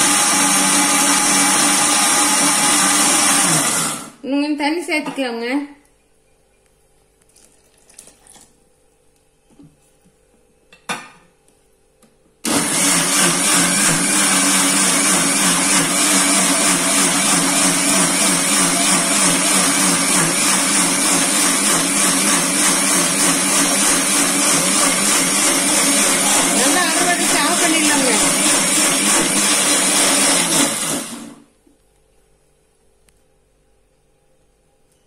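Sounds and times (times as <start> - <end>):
mixer grinder running: 0.0 - 4.2, 12.4 - 31.5.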